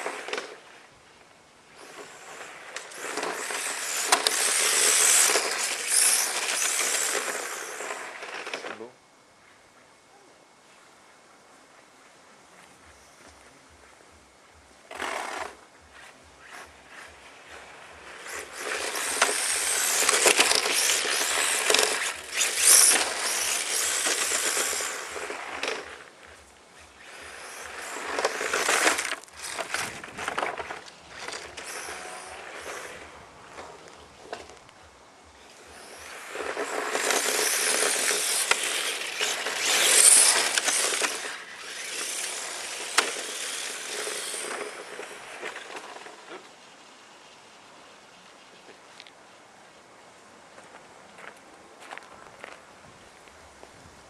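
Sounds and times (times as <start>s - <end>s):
high motor whine: 1.6s - 9.2s, 12.8s - 47.4s.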